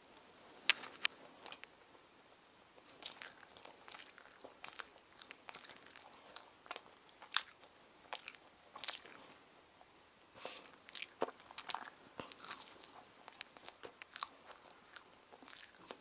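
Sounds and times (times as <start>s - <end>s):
person chewing: 2.8s - 9.3s, 10.4s - 16.0s.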